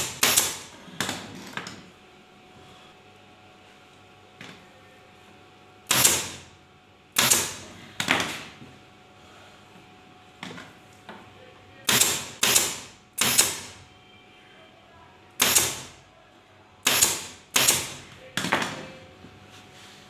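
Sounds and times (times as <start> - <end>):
staple gun firing: 5.9 - 6.4, 7.2 - 7.6, 11.9 - 13.7, 15.4 - 15.9, 16.9 - 17.9.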